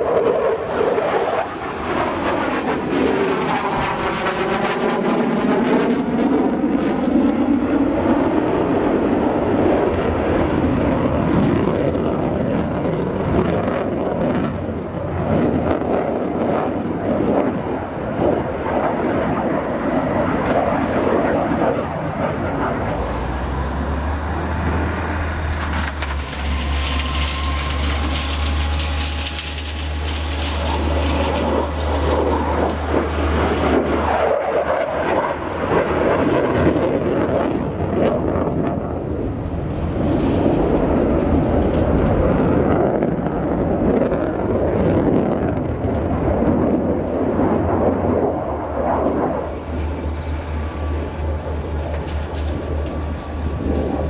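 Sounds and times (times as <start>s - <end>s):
jet whoosh passing: 0.0s - 10.6s
deep low rumble: 0.0s - 54.0s
jet fighter roar: 0.0s - 54.0s.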